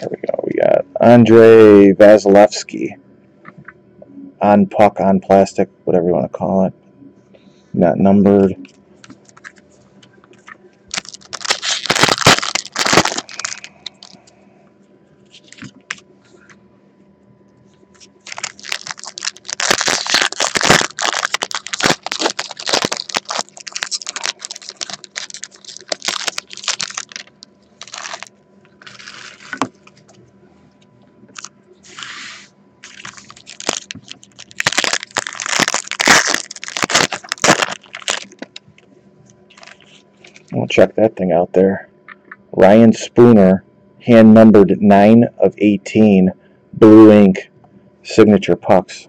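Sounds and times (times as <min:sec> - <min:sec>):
plastic wrappers crinkling and tearing: 0:10.9 - 0:14.2, 0:18.2 - 0:30.0, 0:32.8 - 0:38.6, 0:39.5 - 0:40.5.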